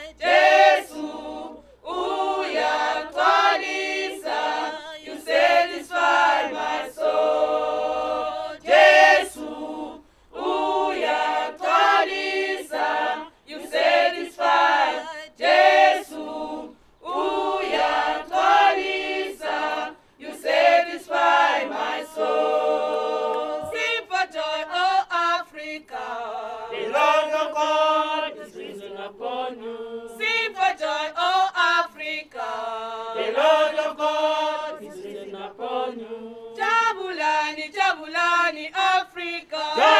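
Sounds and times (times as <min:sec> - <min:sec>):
choir singing: 0:00.0 - 0:39.9.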